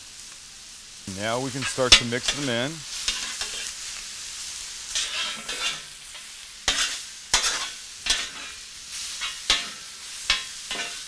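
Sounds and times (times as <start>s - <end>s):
food sizzling on a griddle: 0.0s - 11.0s
metal spatula clacking on griddle: 3.1s - 3.7s, 5.0s - 8.6s, 9.2s - 11.0s.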